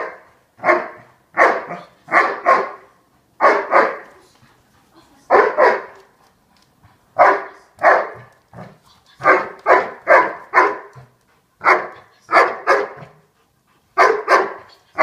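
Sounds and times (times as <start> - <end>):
dog barking: 0.0 - 4.1, 5.3 - 6.0, 7.2 - 8.3, 9.2 - 11.0, 11.6 - 13.2, 14.0 - 15.0.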